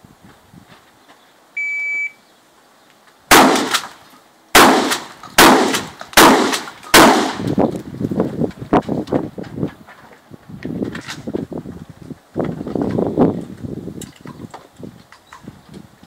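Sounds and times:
footsteps: 0.2s - 1.3s, 7.5s - 13.7s
shot timer beep: 1.6s - 2.2s
shotgun shots with echo: 3.3s - 3.9s, 4.6s - 7.6s.

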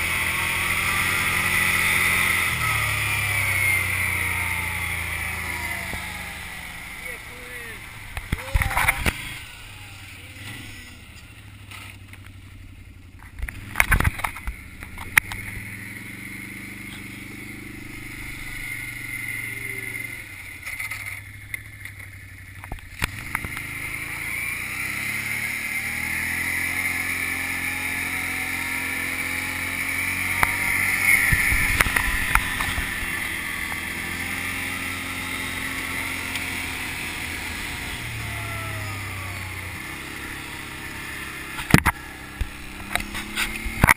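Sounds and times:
atv engine running: 0.0s - 43.9s.

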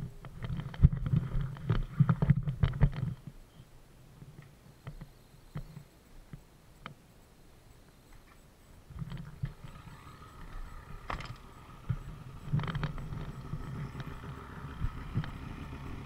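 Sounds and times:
low bumps: 8.9s - 16.0s.

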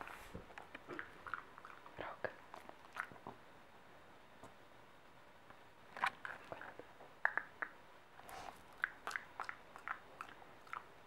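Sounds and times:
dog chewing food noisily: 0.8s - 3.4s, 8.2s - 11.0s.

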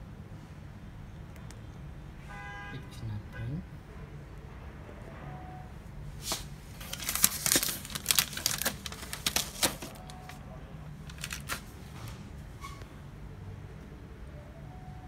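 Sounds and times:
printer mechanism clicking and rattling: 11.1s - 11.7s.

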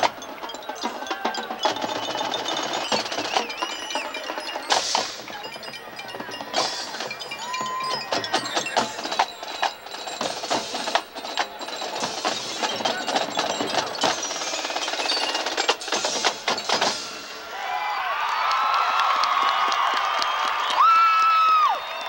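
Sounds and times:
band music with drums: 0.0s - 17.6s.

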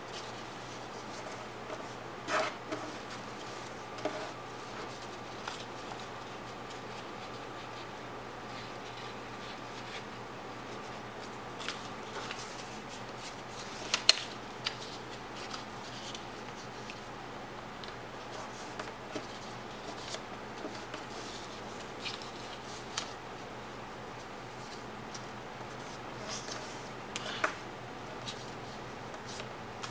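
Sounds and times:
paper crinkling and tapping: 11.2s - 17.0s.

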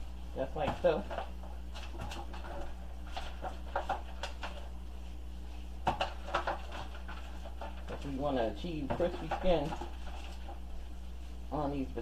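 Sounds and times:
steady low hum: 0.0s - 12.0s
hands rubbing in foil pan: 9.1s - 11.5s.

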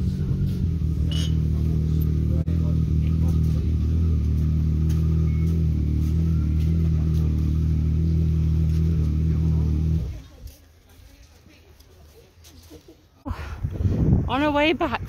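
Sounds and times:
vehicle engine idling: 0.0s - 10.4s.

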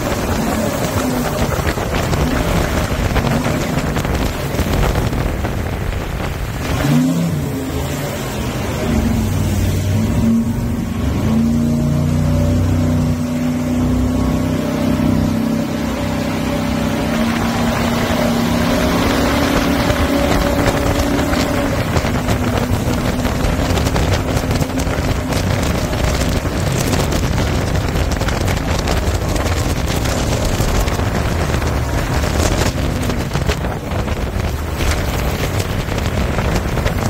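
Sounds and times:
wind buffeting microphone: 0.0s - 11.4s, 12.5s - 37.0s
boat engine running hard: 0.0s - 37.0s
rushing wind and water: 0.0s - 37.0s.

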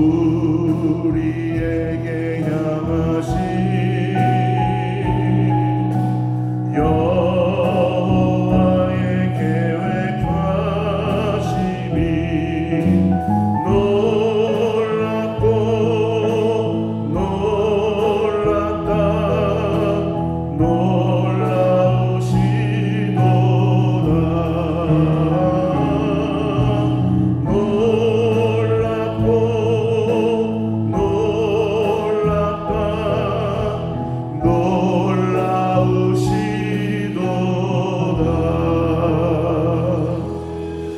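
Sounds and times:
drums: 0.0s - 40.9s
electric bass: 0.0s - 40.9s
keyboard: 0.0s - 40.9s
vocal group singing gospel: 0.0s - 40.9s.

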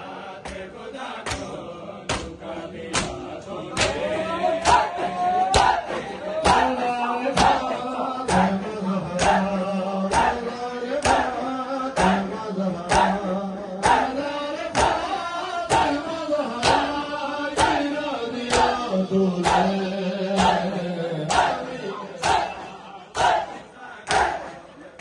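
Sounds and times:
crowd beating chests: 1.3s - 13.2s, 13.8s - 24.8s
man chanting over loudspeaker: 3.4s - 23.6s.

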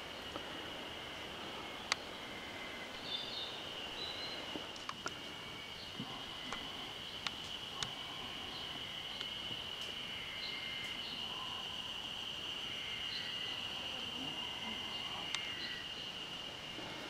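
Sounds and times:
high insect drone: 0.0s - 17.0s.

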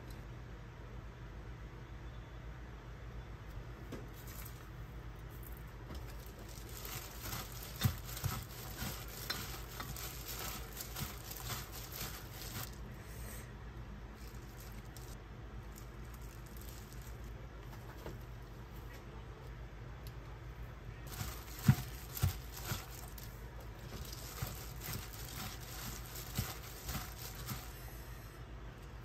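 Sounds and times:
wet crinkly rustle of mixing: 4.1s - 12.9s, 14.1s - 18.8s, 21.0s - 28.0s.

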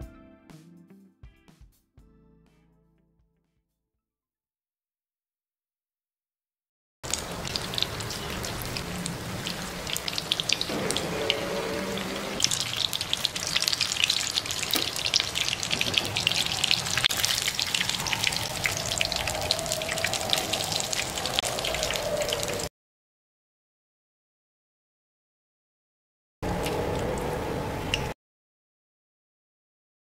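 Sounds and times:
food deep-frying in oil: 7.0s - 22.7s.

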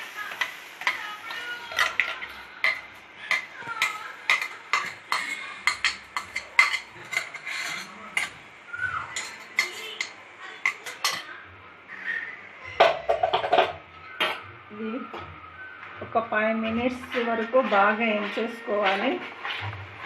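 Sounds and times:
paste sizzling in oil: 0.0s - 8.4s
metal spoon scraping a pan: 0.3s - 8.5s, 9.1s - 11.3s.

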